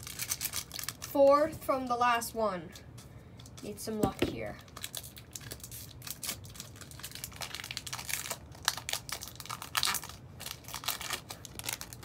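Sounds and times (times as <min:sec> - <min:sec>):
foil pack crinkling: 0:00.0 - 0:01.2, 0:04.5 - 0:12.0.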